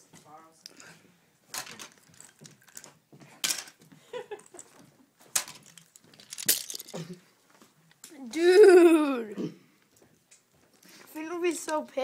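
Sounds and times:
handling clicks and knocks: 1.5 - 3.8, 5.3 - 7.2.

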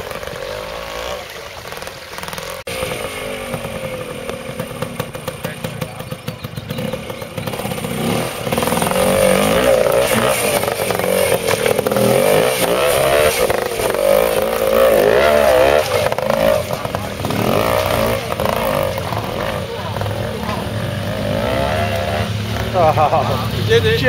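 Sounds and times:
motorcycle engine revving: 0.0 - 24.0.

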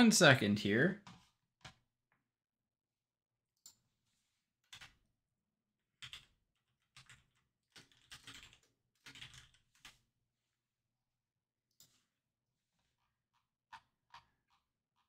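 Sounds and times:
faint keyboard typing: 6.0 - 10.0.

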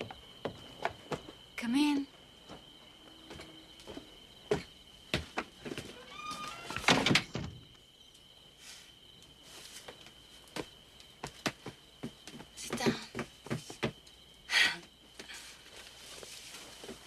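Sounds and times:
footsteps on wooden floor: 2.4 - 6.7, 10.5 - 14.0
wooden door shutting: 5.7 - 7.7
short creak: 5.8 - 7.2.

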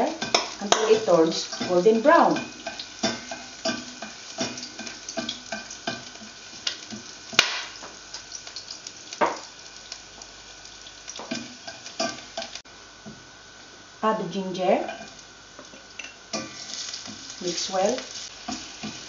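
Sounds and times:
garlic sizzling in oil: 0.0 - 19.0
spatula scraping and tapping pan: 0.2 - 8.0, 11.2 - 12.6, 18.0 - 19.0.

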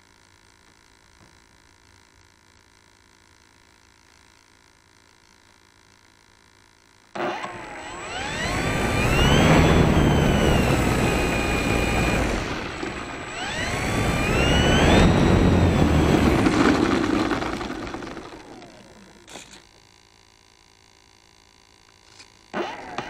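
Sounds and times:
electric motor whine: 7.1 - 20.1
propeller wash rumble: 8.2 - 19.5.

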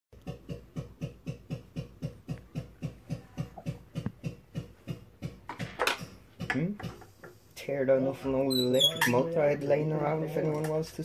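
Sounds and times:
rhythmic knocking: 0.2 - 7.3.

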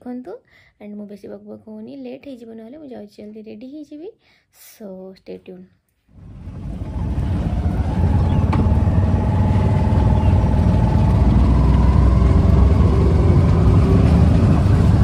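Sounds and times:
small engine low rumble: 6.1 - 15.0.

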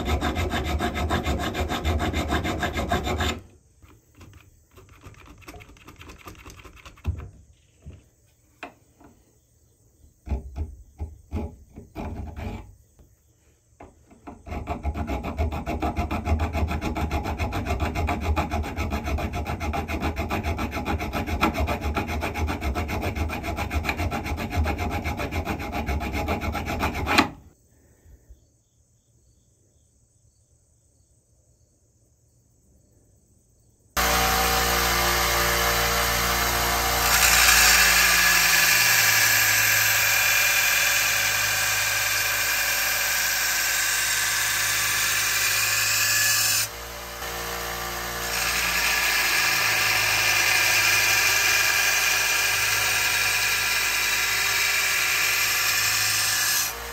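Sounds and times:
hand file rasping on steel: 0.0 - 3.5, 14.4 - 27.4, 34.0 - 56.9
steel grinding on belt: 0.0 - 3.5, 34.0 - 56.9
belt grinder running: 34.0 - 56.9.

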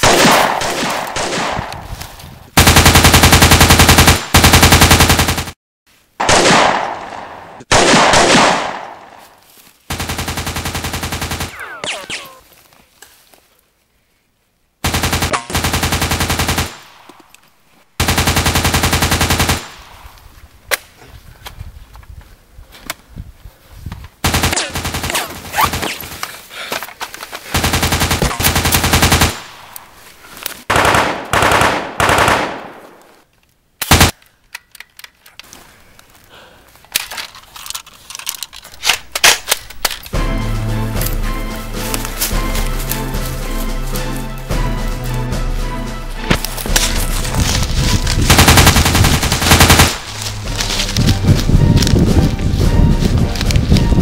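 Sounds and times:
single gunshots: 0.0 - 1.8, 6.2 - 9.2, 11.4 - 12.4, 30.7 - 33.0
automatic gunfire bursts: 2.6 - 5.6, 9.9 - 12.2, 14.8 - 16.8, 18.0 - 19.8, 24.2 - 26.0, 27.5 - 29.4, 30.7 - 32.8, 33.9 - 34.1, 48.3 - 50.0.

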